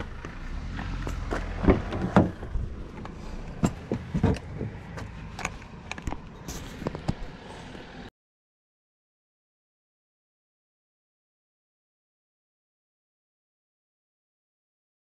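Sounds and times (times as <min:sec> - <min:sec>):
low rumble: 0:00.0 - 0:08.1
gear clicking and knocking: 0:01.0 - 0:07.3.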